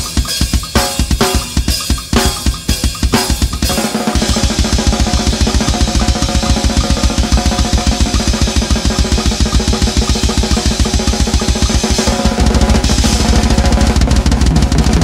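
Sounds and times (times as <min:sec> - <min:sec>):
cymbals: 0:00.0 - 0:15.0
fast bass drum strokes: 0:00.0 - 0:15.0
snare drum: 0:00.0 - 0:15.0.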